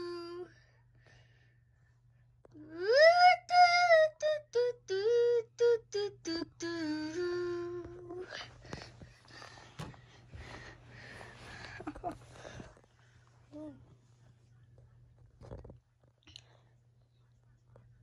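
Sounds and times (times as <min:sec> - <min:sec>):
breathing: 0:00.5 - 0:02.0, 0:08.3 - 0:13.4
person singing wordless tune: 0:02.5 - 0:08.5
faint rustling: 0:07.8 - 0:16.2.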